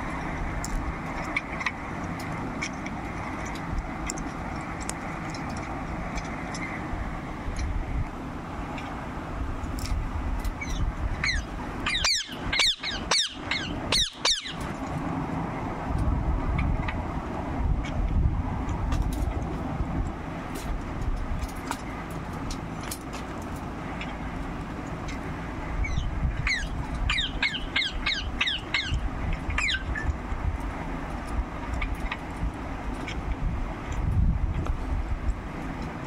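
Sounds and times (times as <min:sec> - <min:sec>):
steady low rumble: 0:00.0 - 0:36.0
parakeet chirping: 0:10.6 - 0:14.6, 0:25.8 - 0:30.1.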